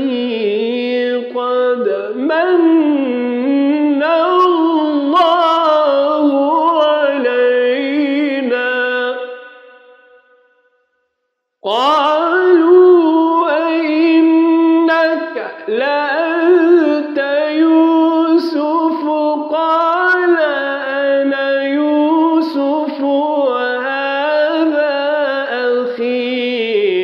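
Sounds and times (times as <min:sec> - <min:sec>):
man chanting melodically: 0:00.0 - 0:10.1, 0:11.6 - 0:27.0.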